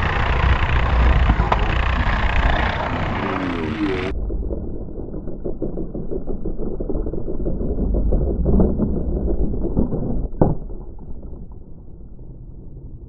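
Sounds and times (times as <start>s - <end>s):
slot car motor and wheels rumbling: 0.0s - 6.5s.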